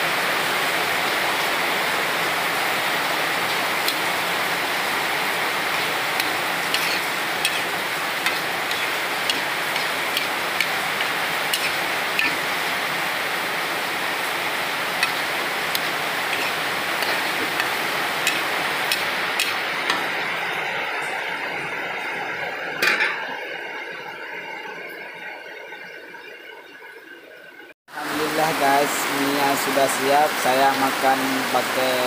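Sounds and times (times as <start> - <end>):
soup boiling in a wok: 0.1 - 22.5.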